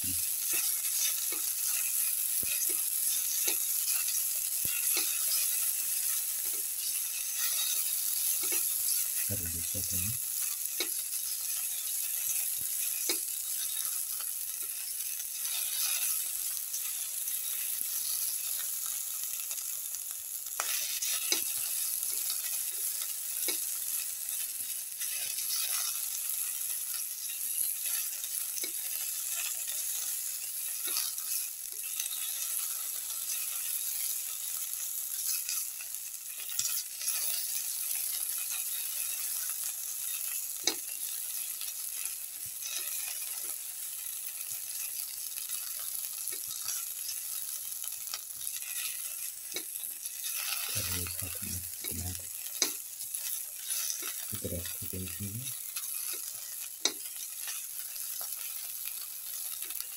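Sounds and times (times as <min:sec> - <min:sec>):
oil sizzling in a pan: 0:00.0 - 0:59.9
spatula scraping and tapping pan: 0:00.4 - 0:09.2, 0:20.6 - 0:24.4, 0:25.0 - 0:34.3, 0:36.4 - 0:43.6, 0:44.3 - 0:47.5, 0:48.1 - 0:51.0, 0:51.7 - 0:54.3, 0:55.6 - 0:59.9.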